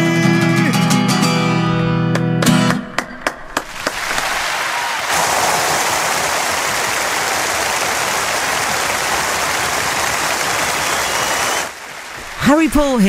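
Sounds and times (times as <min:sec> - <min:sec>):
audience applause: 0:03.6 - 0:13.0.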